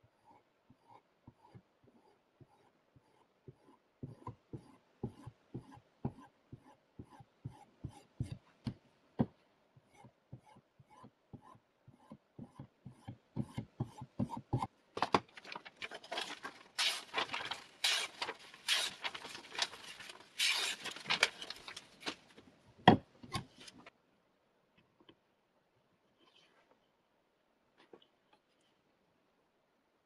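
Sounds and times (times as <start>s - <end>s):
paper rustling: 15.0s - 22.5s
knife slicing paper: 15.8s - 22.2s.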